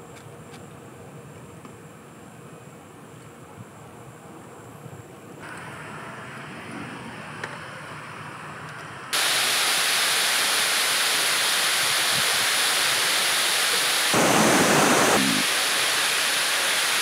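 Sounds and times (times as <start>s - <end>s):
stream rapids: 9.2s - 17.0s
waterfall rushing: 9.2s - 17.0s
airliner low rumble: 14.1s - 15.5s.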